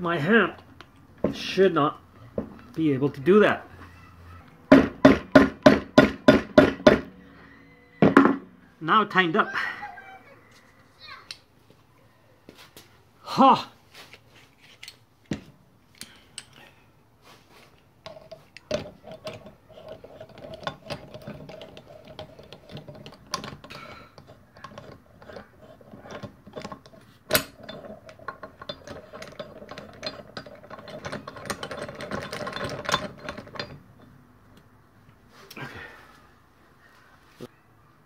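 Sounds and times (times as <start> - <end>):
sharp knocks: 4.7 - 7.1
metal tools clinking: 15.9 - 16.7, 18.0 - 34.3.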